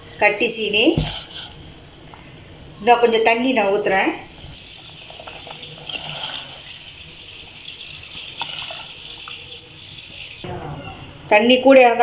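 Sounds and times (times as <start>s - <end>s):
water pouring into pot: 4.6s - 10.4s.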